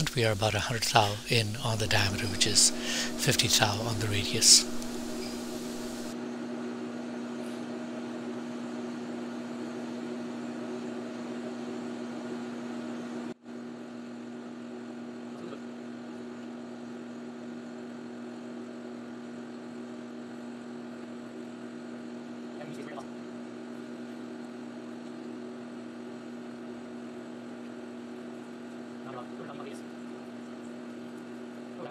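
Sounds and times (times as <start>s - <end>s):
metal lathe cutting steel hum: 0.8s - 6.1s.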